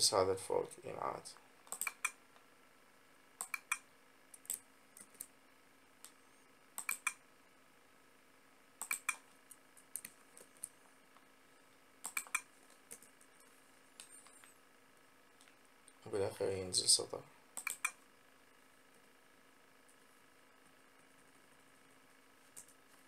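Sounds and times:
faint steady hum: 0:00.0 - 0:23.0
keyboard keystrokes and clicks: 0:01.7 - 0:02.2, 0:03.4 - 0:03.8, 0:06.8 - 0:07.2, 0:08.8 - 0:09.2, 0:12.0 - 0:13.1, 0:17.6 - 0:18.0.

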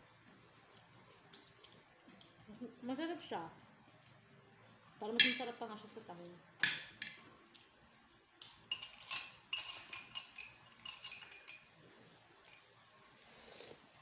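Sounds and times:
shells clinking in a ceramic bowl: 0:08.6 - 0:11.8.

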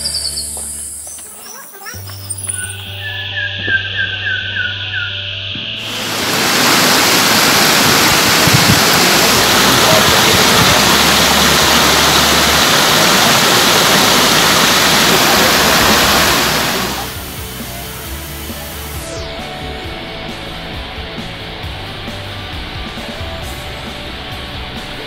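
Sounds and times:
water rushing over rocks: 0:05.8 - 0:19.0.

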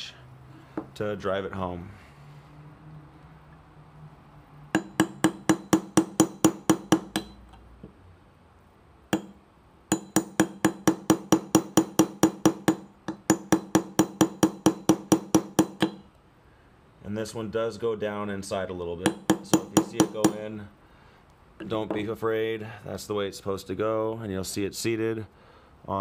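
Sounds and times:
hammer tapping metal punch: 0:04.7 - 0:07.6, 0:09.1 - 0:16.1, 0:19.0 - 0:20.5.

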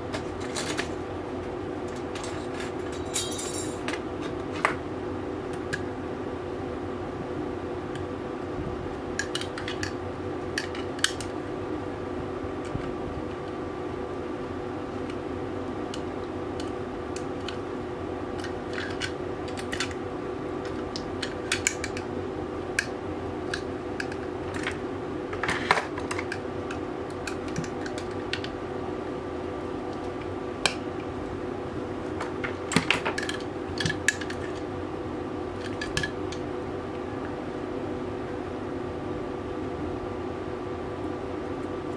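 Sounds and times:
steady hum: 0:00.0 - 0:41.9
small parts clicking and clinking: 0:01.9 - 0:04.0, 0:20.6 - 0:22.1.

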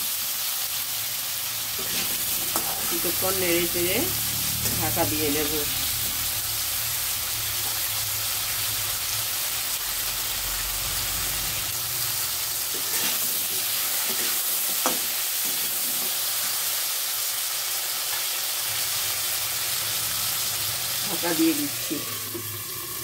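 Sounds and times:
potatoes sizzling in hot oil: 0:00.0 - 0:23.0
spatula scraping a pan: 0:01.7 - 0:03.4, 0:12.7 - 0:16.5.

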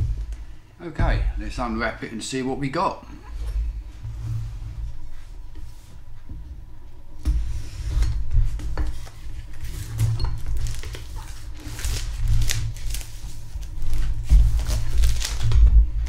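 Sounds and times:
low rumble of handling box: 0:00.0 - 0:02.0, 0:03.1 - 0:16.0
plastic film crackling: 0:09.0 - 0:16.0
knife slitting plastic wrap: 0:09.7 - 0:15.7.

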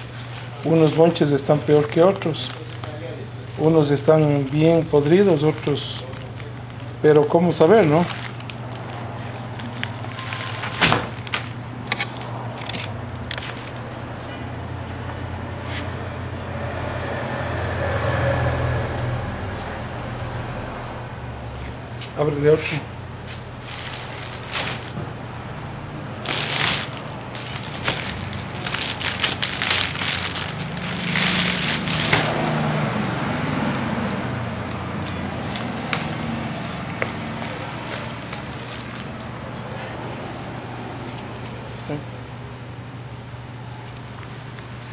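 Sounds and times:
paper wrapping rustling: 0:00.0 - 0:14.3, 0:23.2 - 0:39.5, 0:43.8 - 0:44.9
plastic and cardboard crinkling: 0:00.0 - 0:14.4, 0:23.2 - 0:39.5, 0:43.8 - 0:44.9
steady low hum: 0:20.9 - 0:44.9.

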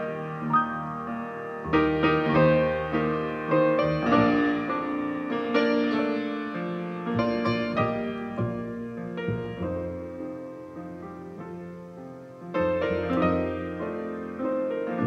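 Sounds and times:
double bass line: 0:00.0 - 0:05.9, 0:07.0 - 0:15.0
piano chords and melody: 0:00.0 - 0:15.0.

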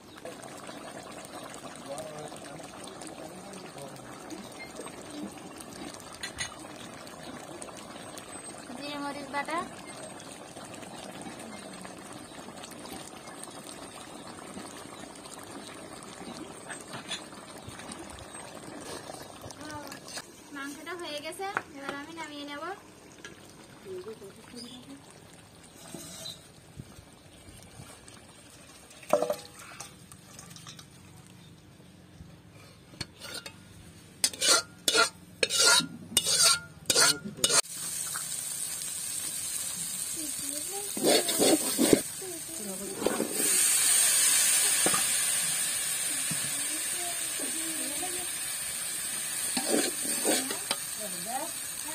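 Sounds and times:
prawns sizzling: 0:00.0 - 0:26.6, 0:33.1 - 0:51.9
curry bubbling in a wok: 0:00.0 - 0:31.8, 0:34.2 - 0:51.9
metal spatula scraping metal: 0:25.8 - 0:26.5, 0:33.0 - 0:33.6, 0:34.2 - 0:37.6, 0:41.0 - 0:42.0, 0:49.5 - 0:50.8.

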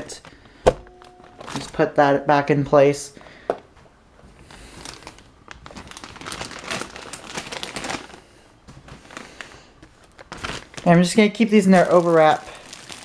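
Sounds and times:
plastic wrap crinkling: 0:00.8 - 0:01.8, 0:04.4 - 0:13.0.

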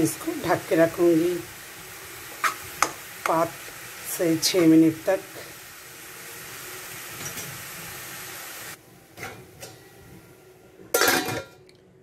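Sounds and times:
food sizzling in oil: 0:00.0 - 0:10.1
metal lid clattering onto pan: 0:11.0 - 0:11.6.

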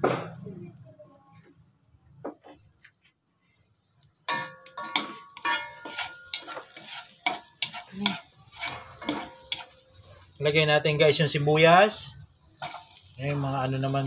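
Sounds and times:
fat sizzling and crackling: 0:00.0 - 0:14.0
wooden spatula scraping a pot: 0:04.3 - 0:10.3, 0:12.6 - 0:13.0.

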